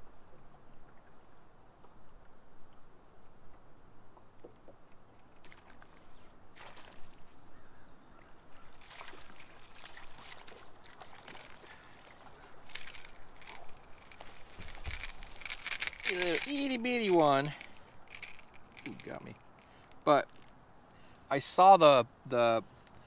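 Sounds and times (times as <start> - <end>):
water splashing and sloshing: 0.1 - 20.6
fish thrashing in water: 8.6 - 19.0.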